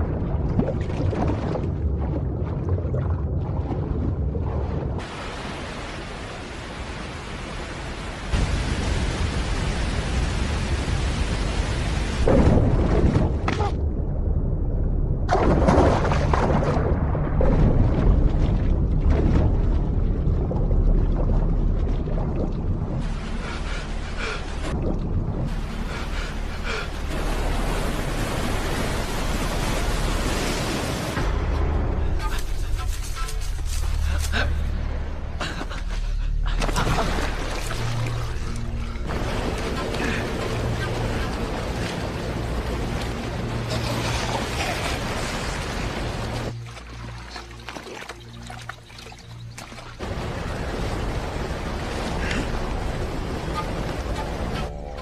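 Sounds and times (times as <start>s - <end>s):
muffled underwater rumble bubbling: 0.0s - 5.0s, 12.4s - 28.7s
deep rumble: 0.0s - 5.2s, 8.4s - 47.7s
churning river: 0.0s - 14.6s, 15.2s - 55.0s
underwater rushing and bubbling: 0.0s - 55.0s
roar of white-water rapids: 39.1s - 46.5s, 50.0s - 54.8s
waterfall roaring: 50.0s - 54.7s.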